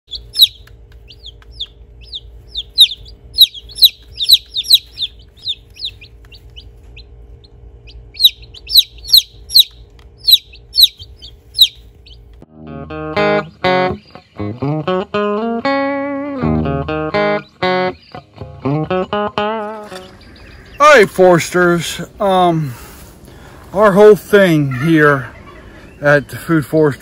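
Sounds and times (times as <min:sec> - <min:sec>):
chicks peeping: 0:00.1 - 0:12.4, 0:13.2 - 0:14.6, 0:17.1 - 0:22.5, 0:23.2 - 0:27.0
steady low hum: 0:00.1 - 0:27.0
guitar music: 0:12.0 - 0:22.3.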